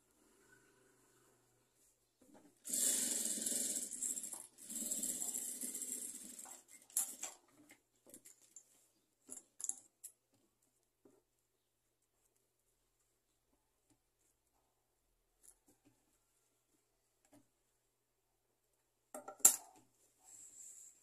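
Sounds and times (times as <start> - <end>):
electric sewing machine stitching: 2.6 - 6.9.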